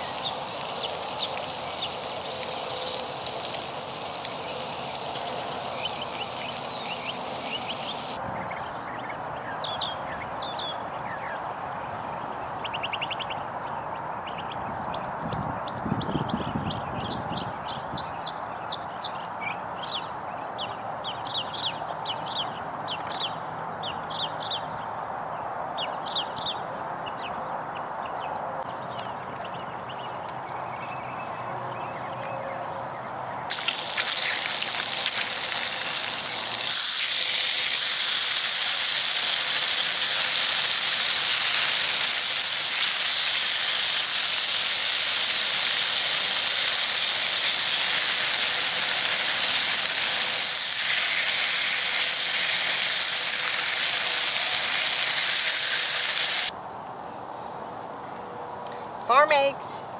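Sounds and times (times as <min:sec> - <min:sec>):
bacon sizzling in skillet: 0:00.0 - 0:08.2, 0:33.5 - 0:56.5.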